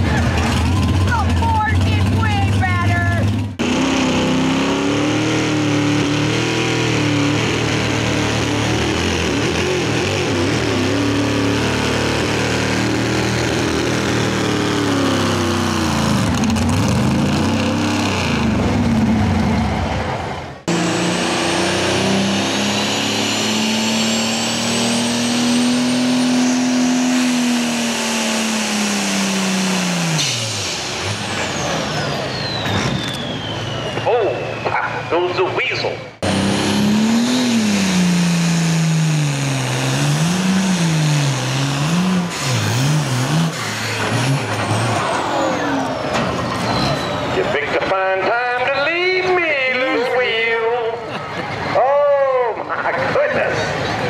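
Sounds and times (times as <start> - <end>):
truck engines at full throttle: 0.0 - 54.0
thin rising whine: 19.5 - 39.9.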